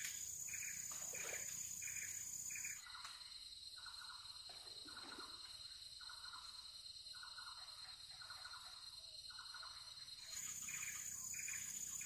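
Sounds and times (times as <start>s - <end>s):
high-pitched insect drone: 0.0s - 3.1s, 9.4s - 12.0s
insect chirring: 0.0s - 12.0s.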